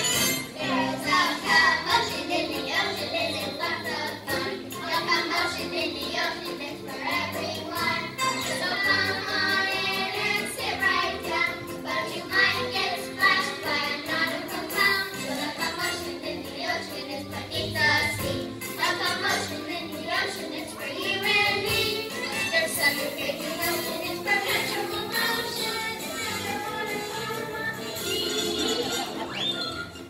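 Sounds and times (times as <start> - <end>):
musical accompaniment: 0.0 - 30.0
children singing: 0.4 - 29.5.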